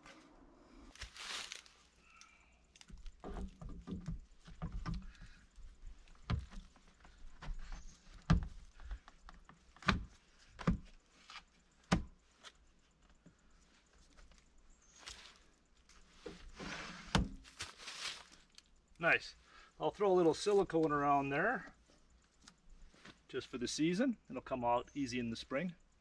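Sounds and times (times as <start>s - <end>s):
wood scraping and rustling: 2.8s - 11.6s, 13.9s - 18.6s
wood thumps and knocks: 2.9s - 11.0s, 11.9s - 12.2s, 16.2s - 17.5s.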